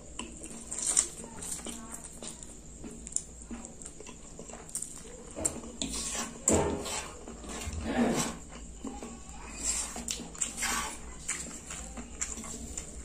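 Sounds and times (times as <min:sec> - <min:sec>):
chewing with mouth smacks: 0:00.0 - 0:07.8, 0:08.4 - 0:13.0
slurping noodles: 0:05.8 - 0:08.5, 0:09.5 - 0:11.6.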